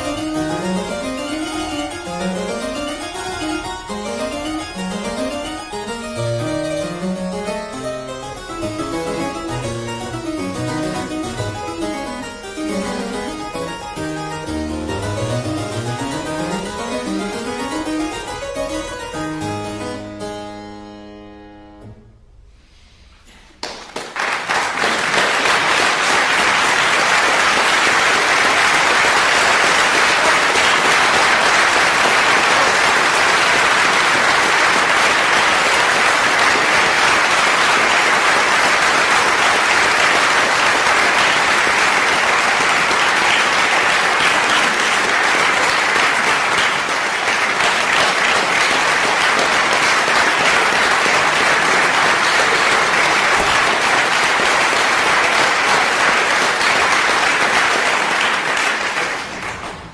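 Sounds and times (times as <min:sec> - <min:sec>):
audience applauding: 0:23.6 - 0:59.9.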